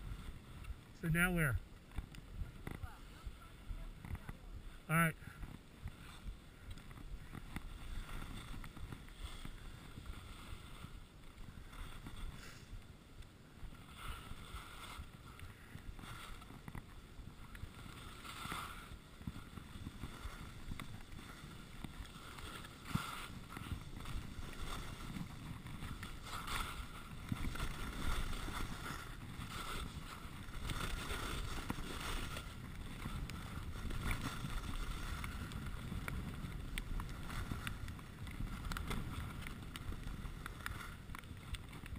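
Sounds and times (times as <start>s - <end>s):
skis scraping over snow: 0.0s - 41.9s
wind on microphone: 0.0s - 41.9s.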